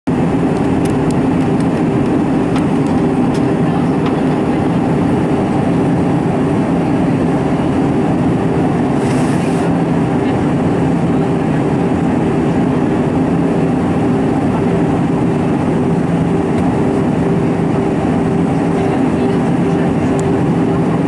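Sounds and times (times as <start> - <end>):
aircraft engines droning: 0.1 - 21.0
rush of airflow: 1.2 - 11.0.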